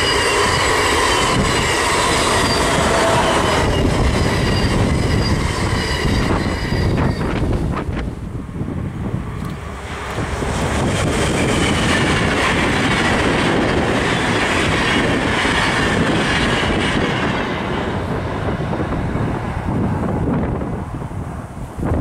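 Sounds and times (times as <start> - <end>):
train wheels clattering on rails: 0.0 - 8.1, 9.8 - 18.6.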